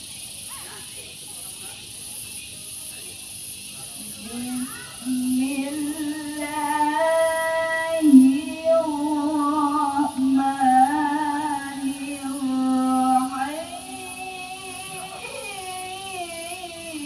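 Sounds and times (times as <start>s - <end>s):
woman chanting melodically: 4.0s - 17.0s.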